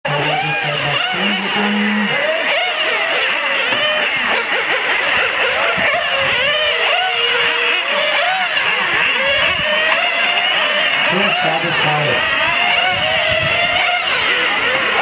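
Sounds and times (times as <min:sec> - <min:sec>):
small nitro engines revving: 0:00.0 - 0:15.0.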